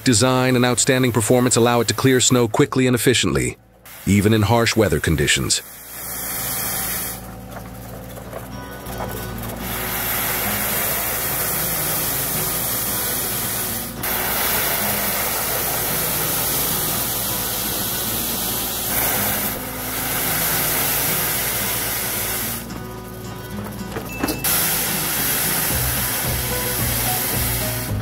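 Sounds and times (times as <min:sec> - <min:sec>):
snow blower throwing snow: 0:00.0 - 0:28.0
background music: 0:06.1 - 0:28.0.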